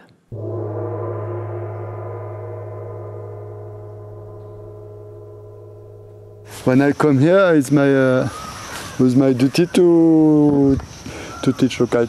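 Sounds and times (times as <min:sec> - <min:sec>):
deep gong ringing: 0:00.3 - 0:08.4.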